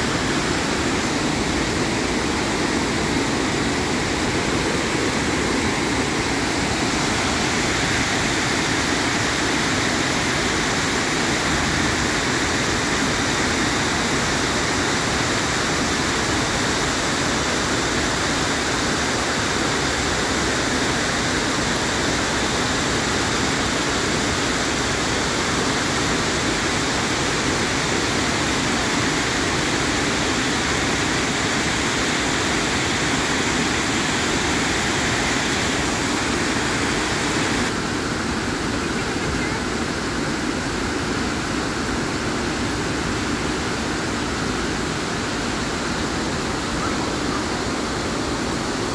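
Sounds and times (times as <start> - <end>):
waterfall rushing: 0.0 - 48.9.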